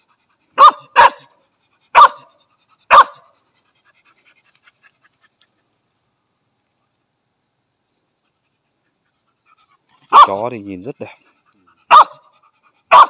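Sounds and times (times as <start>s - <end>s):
dog barking sharply: 0.6s - 1.3s, 2.0s - 2.3s, 2.9s - 3.2s, 10.1s - 10.4s, 11.9s - 12.2s.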